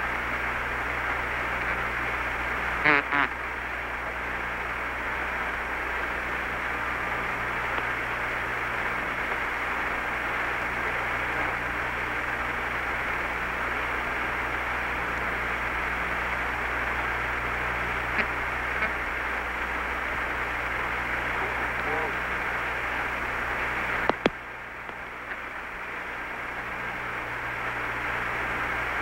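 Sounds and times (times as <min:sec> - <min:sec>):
radio hiss and low hum: 0:00.0 - 0:29.0
faint clicks: 0:24.0 - 0:25.5.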